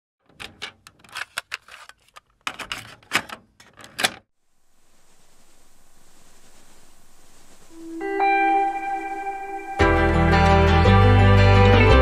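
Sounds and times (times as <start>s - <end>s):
faint hiss: 4.4s - 9.8s.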